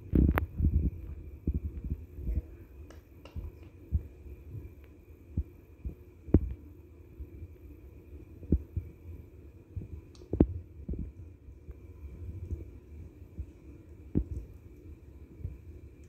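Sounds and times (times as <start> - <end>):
soft low thumps: 0.0 - 2.4, 5.4 - 6.6, 9.8 - 11.2
faint high hum: 0.0 - 16.0.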